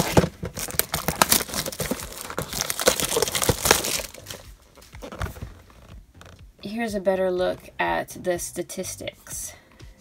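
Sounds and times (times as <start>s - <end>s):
plastic shrink wrap crinkling: 0.0s - 6.4s.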